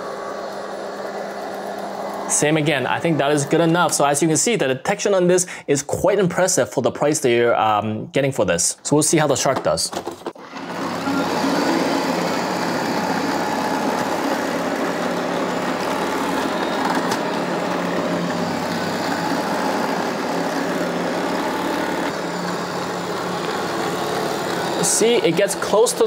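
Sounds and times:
robot vacuum whirring: 0.0s - 4.0s, 10.4s - 26.0s.

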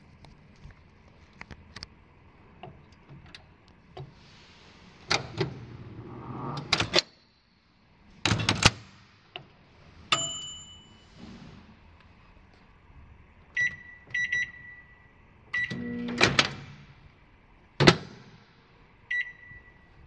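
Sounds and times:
microwave humming: 13.4s - 17.1s.

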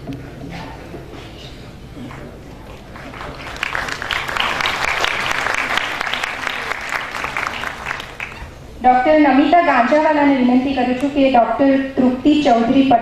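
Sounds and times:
audience applauding: 2.9s - 8.6s.

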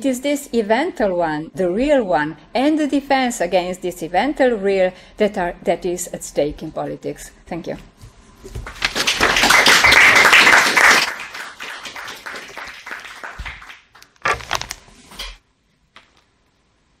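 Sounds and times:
audience applauding: 8.7s - 14.2s.

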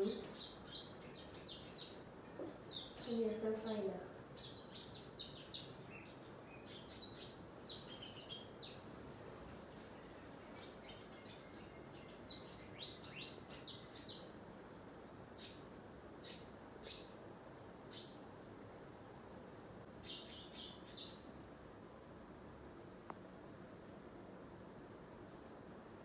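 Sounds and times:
small birds chirping: 0.0s - 9.0s, 9.7s - 14.5s, 15.2s - 18.4s, 19.8s - 21.5s
faint steady hiss: 0.0s - 26.0s.

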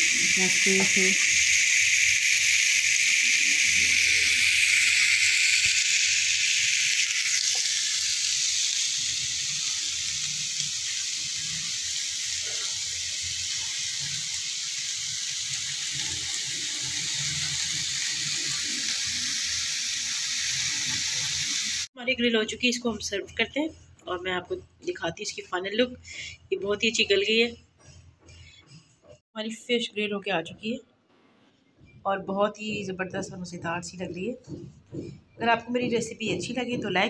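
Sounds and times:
fish sizzling in grill pan: 0.0s - 21.9s.

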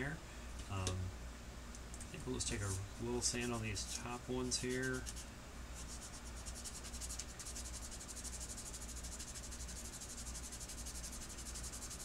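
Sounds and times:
sanding stick rasping on plastic: 5.8s - 12.0s.

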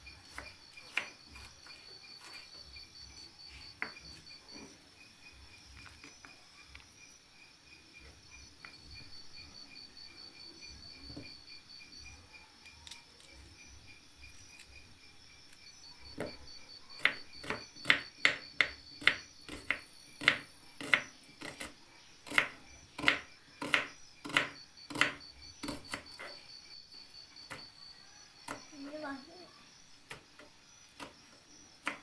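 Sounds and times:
knife chopping on wooden board: 0.2s - 2.6s, 3.7s - 4.7s, 17.0s - 26.4s, 28.4s - 28.7s, 30.1s - 32.0s.

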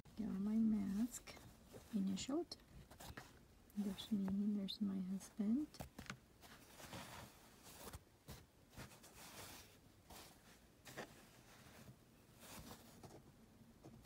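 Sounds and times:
fabric rustling: 0.0s - 4.6s, 5.5s - 14.0s.

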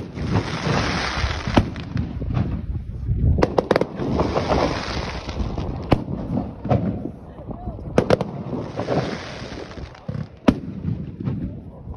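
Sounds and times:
firework bangs: 0.0s - 7.2s, 7.9s - 11.8s
dense crackling hiss: 8.1s - 11.1s.

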